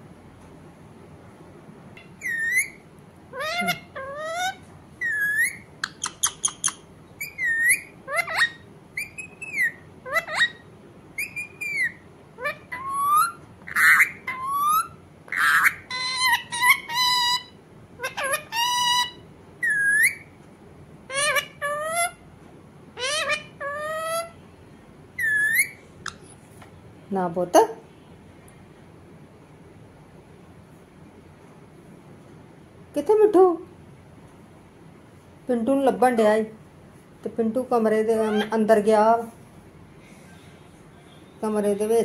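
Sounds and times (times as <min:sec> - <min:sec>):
parakeet squawks: 0:02.0 - 0:20.3, 0:21.1 - 0:22.2, 0:23.0 - 0:24.4, 0:25.2 - 0:26.3, 0:38.2 - 0:38.7
parakeet warbling trills: 0:02.0 - 0:20.3, 0:21.1 - 0:22.2, 0:23.0 - 0:24.4, 0:25.2 - 0:26.2, 0:38.2 - 0:38.6
parakeet whistling: 0:02.0 - 0:20.3, 0:23.0 - 0:24.4, 0:25.2 - 0:26.2, 0:38.2 - 0:38.6
parakeet clicks: 0:05.8 - 0:06.8.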